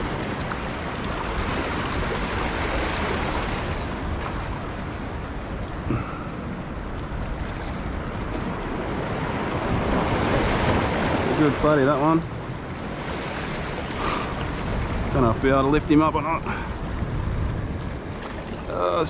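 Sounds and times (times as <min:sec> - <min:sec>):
waves sloshing against rocks: 0:00.0 - 0:19.0
wind buffeting microphone: 0:00.0 - 0:19.0.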